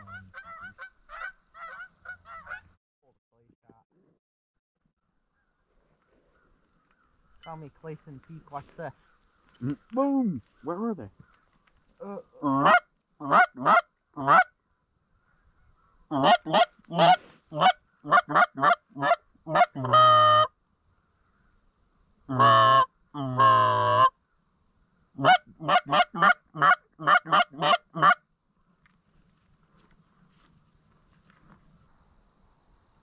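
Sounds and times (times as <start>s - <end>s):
goose call clucks and honks: 0.0s - 2.8s, 12.0s - 14.5s, 16.1s - 20.5s, 22.3s - 24.2s, 25.2s - 28.2s.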